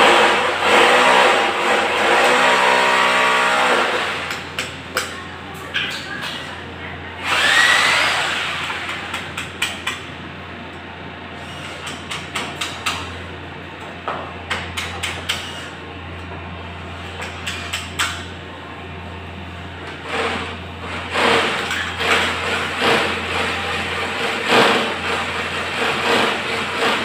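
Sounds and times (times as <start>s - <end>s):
rising whir: 7.2s - 8.8s.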